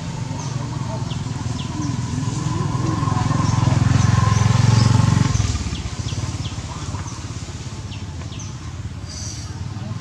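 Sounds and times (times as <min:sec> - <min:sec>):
motorcycle engine running: 0:00.0 - 0:10.0.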